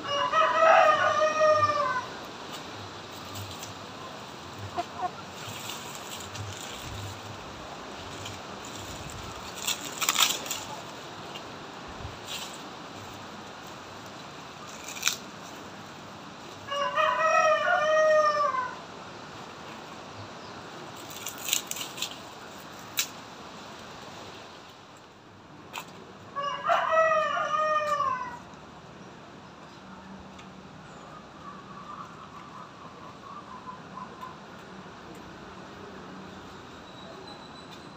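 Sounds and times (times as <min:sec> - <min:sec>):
rooster crowing: 0:00.0 - 0:02.2, 0:16.7 - 0:18.8, 0:26.4 - 0:28.5.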